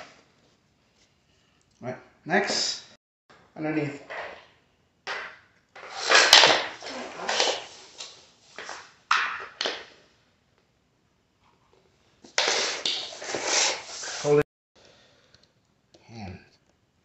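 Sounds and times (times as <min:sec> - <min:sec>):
rustling and handling noise: 0:05.8 - 0:10.0.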